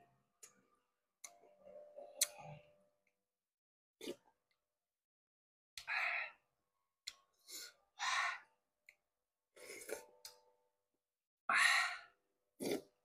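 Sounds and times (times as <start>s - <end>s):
man slurping porridge: 12.6s - 13.0s.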